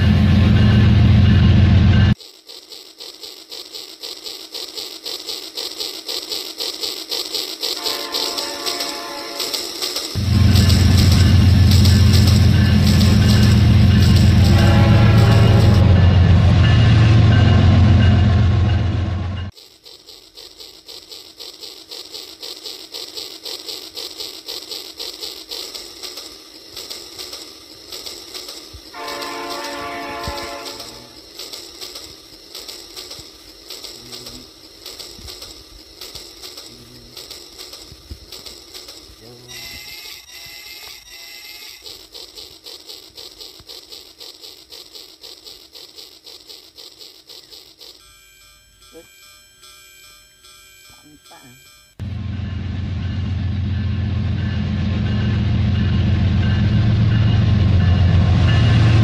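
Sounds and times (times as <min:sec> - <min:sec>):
toy locomotive electronic chuffing: 0:00.0 - 0:59.0
electronic whistle toot: 0:07.6 - 0:09.8, 0:28.9 - 0:31.2, 0:39.5 - 0:42.0, 0:49.9 - 0:52.0.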